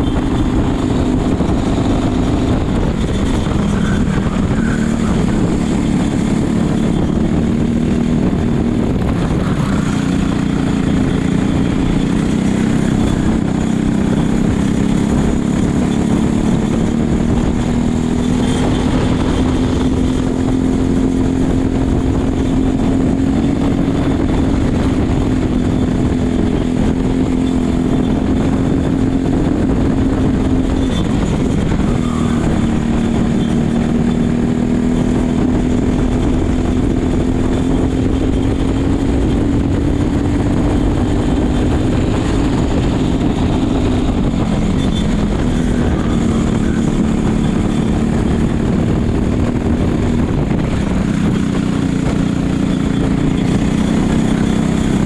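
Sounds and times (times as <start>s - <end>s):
racing kart engine at high revs: 0.0s - 55.0s
wind rush on microphone: 0.0s - 55.0s.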